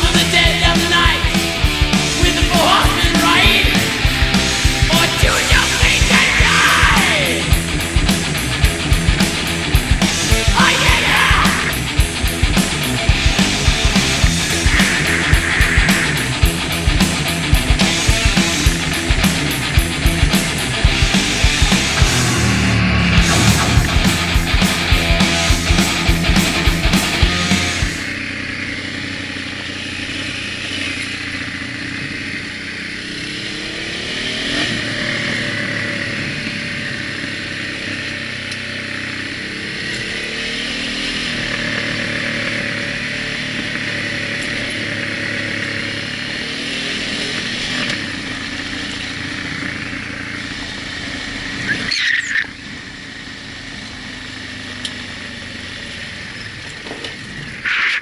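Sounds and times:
steady rushing noise: 0:00.0 - 0:28.2
motorcycle engine running: 0:00.0 - 0:58.0
brief squeak: 0:51.7 - 0:52.5.

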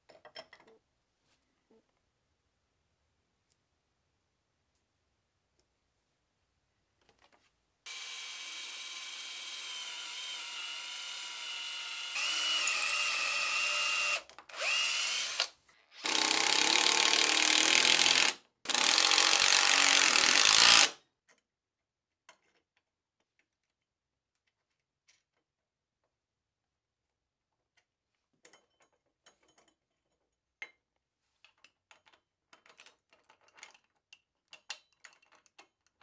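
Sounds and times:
cordless drill driving screws: 0:07.9 - 0:21.0.

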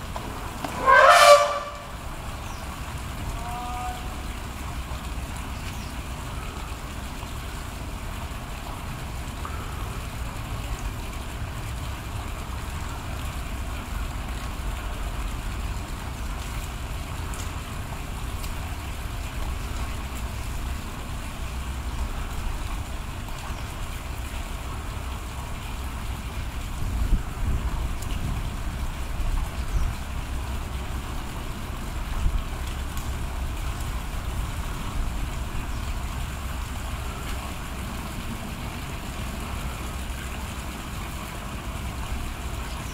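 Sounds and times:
wind rumble on microphone: 0:25.8 - 0:39.8.

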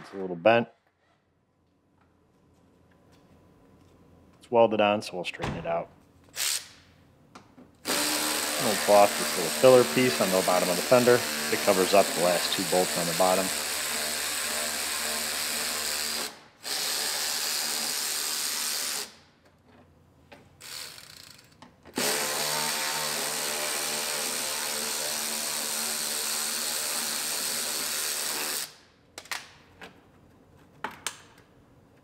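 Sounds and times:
cordless power tool running: 0:07.9 - 0:19.0, 0:22.0 - 0:28.7.

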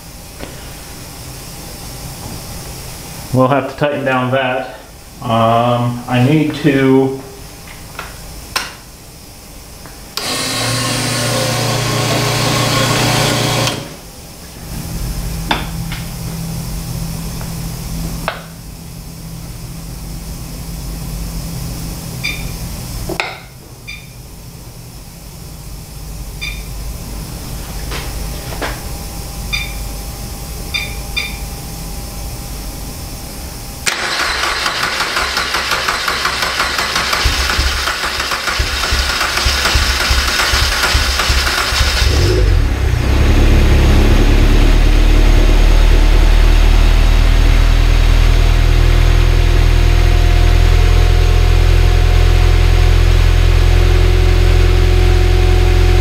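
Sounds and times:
starter cranking: 0:33.9 - 0:42.5
car engine idling: 0:33.9 - 0:51.2.

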